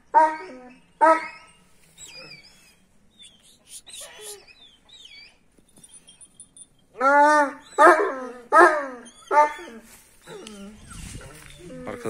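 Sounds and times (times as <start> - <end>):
small birds chirping: 1.6 - 6.9
dog barking loudly: 7.8 - 9.6.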